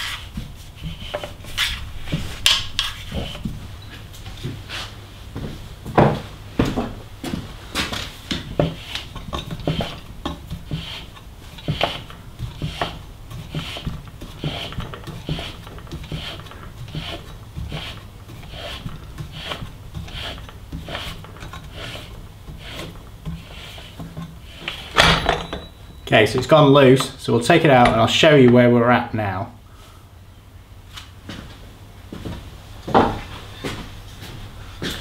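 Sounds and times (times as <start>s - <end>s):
bearing press rasping rub: 0.0s - 5.0s, 7.8s - 27.2s.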